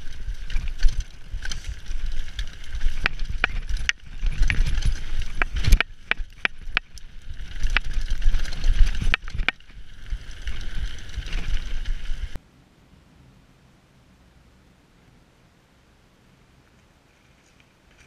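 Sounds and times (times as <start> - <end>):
bike hitting stones and roots: 0.0 - 12.4
bike tyres rumbling on gravel: 0.0 - 12.4
wind noise on microphone: 0.0 - 14.3.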